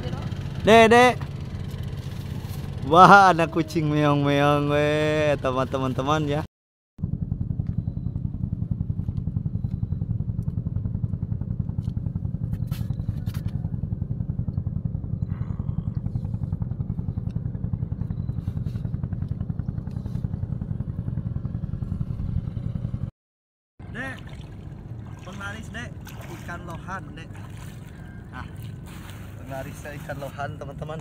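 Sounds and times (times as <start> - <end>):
small engine running: 0.0 - 6.4, 7.0 - 23.1.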